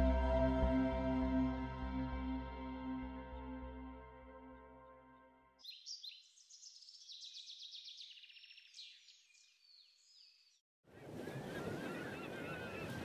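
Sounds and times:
songbird chirping and trilling: 4.5 - 13.0.

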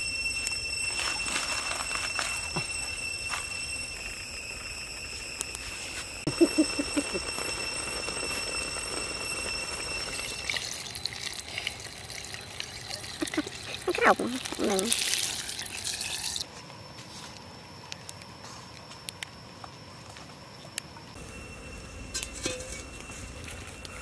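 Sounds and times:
low chirps: 0.0 - 14.9, 21.0 - 24.0
steady high-pitched tones: 0.0 - 24.0
water splashing and trickling: 10.1 - 16.5.

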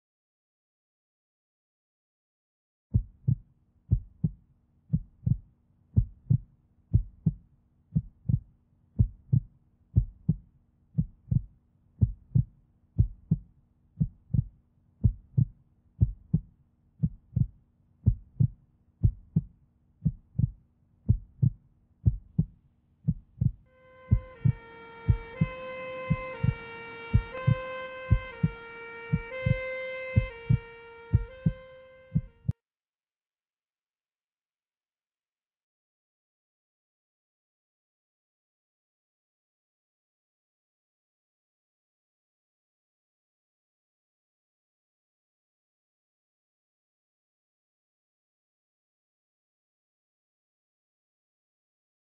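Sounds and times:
heartbeat thumps: 3.0 - 5.4, 6.0 - 32.6
synth melody: 23.8 - 32.5.

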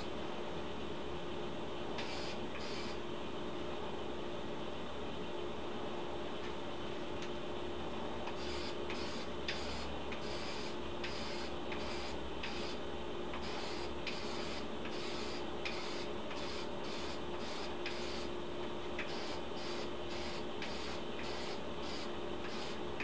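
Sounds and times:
steady background hum: 0.0 - 23.0
aerosol can spraying bursts: 13.4 - 18.3, 19.0 - 22.8.

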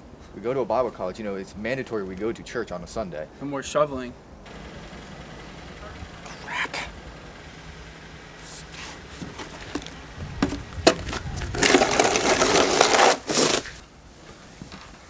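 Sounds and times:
snow shovels scraping snow: 8.4 - 10.0, 10.9 - 13.9
snow shovels knocking: 8.5 - 13.8.

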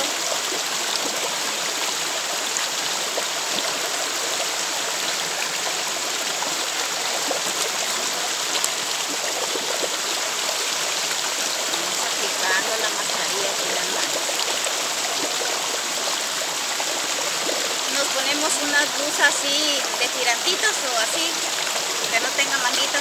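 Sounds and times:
stream flowing over stones: 0.0 - 23.0.

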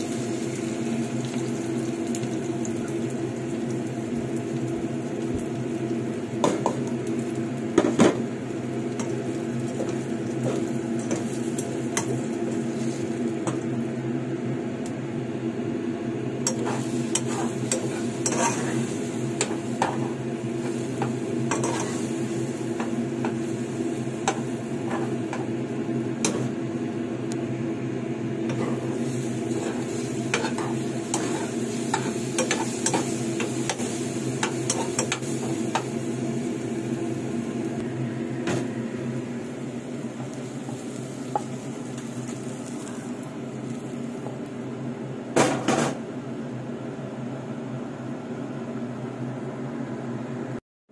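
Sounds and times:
food sizzling in oil: 0.0 - 44.8
utensil scraping pan: 16.5 - 23.4, 28.5 - 35.9.

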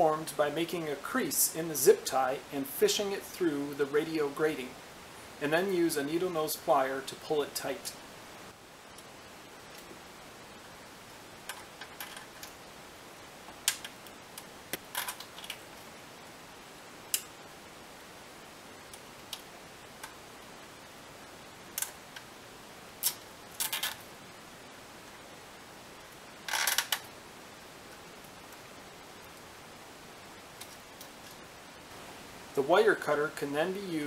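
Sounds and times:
zip tie clicking on metal: 23.0 - 24.0, 26.5 - 27.1.

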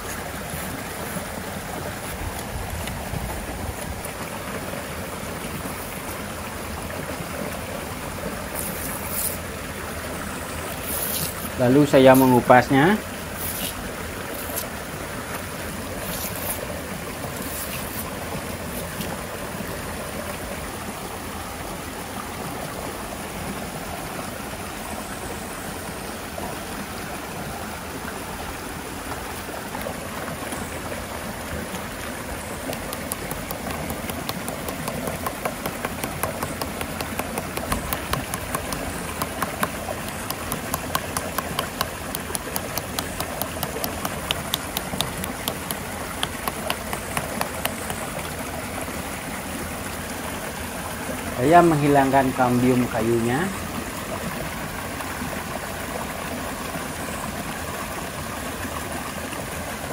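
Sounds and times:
river flowing: 0.0 - 59.9
short sharp ticks: 32.7 - 48.0.

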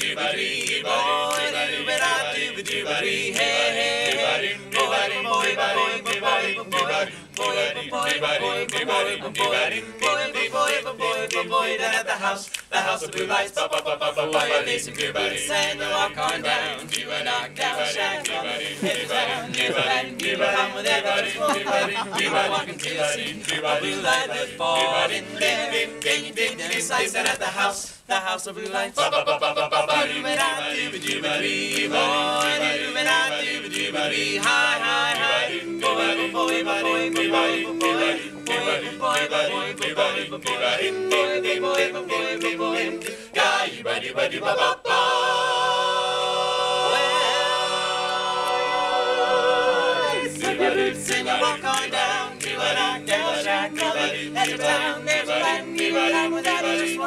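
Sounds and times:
finger snaps: 0.0 - 21.6, 30.4 - 43.4
male group singing a cappella: 0.0 - 57.0.

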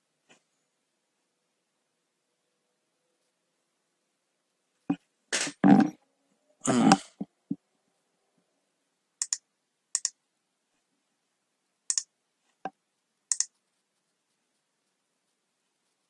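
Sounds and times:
computer mouse double clicks: 9.2 - 9.4, 10.0 - 10.2, 13.3 - 13.5.

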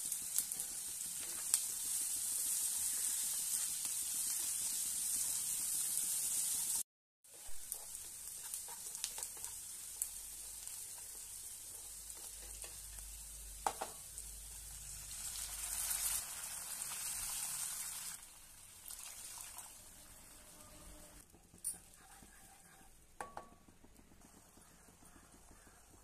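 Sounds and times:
food sizzling in oil: 0.0 - 20.6, 21.2 - 23.5
water poured into hot pan: 14.7 - 20.3
spatula knocking pan: 23.2 - 26.0.

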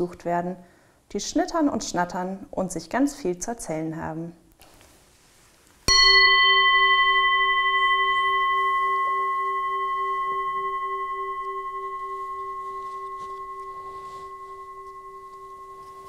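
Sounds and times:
singing bowl ringing: 5.9 - 16.0.

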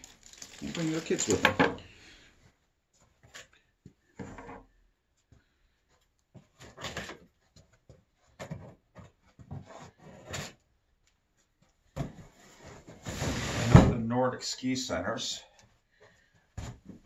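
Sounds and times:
cardboard box scraping and rustling: 12.4 - 13.8.

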